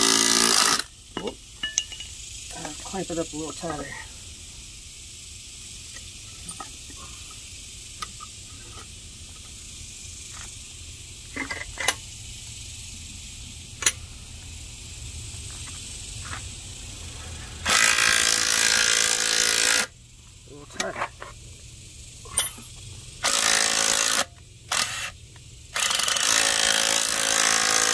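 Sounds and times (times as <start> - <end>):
drill running: 0.0 - 0.9, 17.6 - 19.9, 23.2 - 25.2, 25.8 - 27.9.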